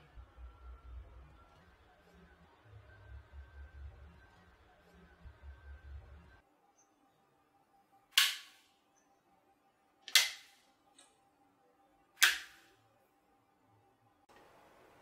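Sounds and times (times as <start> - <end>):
plastic modules clicking into place: 8.2 - 8.6, 10.1 - 11.2, 12.2 - 12.7.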